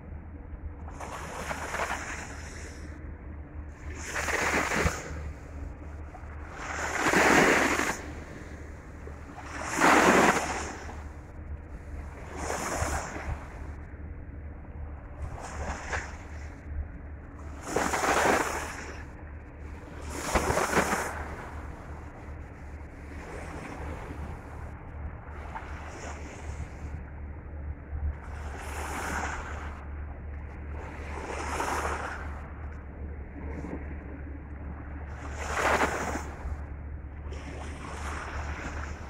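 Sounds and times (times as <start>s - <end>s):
wind rumble on microphone: 0.0s - 39.0s.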